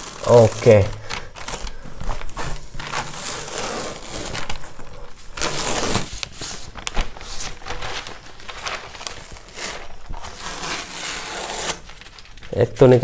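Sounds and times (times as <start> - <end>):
paper backing crinkling: 0.0 - 13.0.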